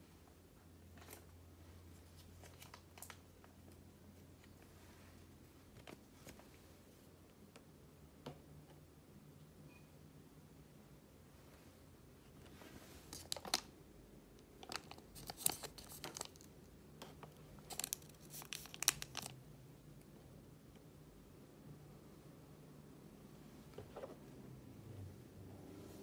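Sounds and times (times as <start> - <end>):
paper crinkling: 13.0 - 13.7, 14.6 - 16.5, 17.3 - 19.4.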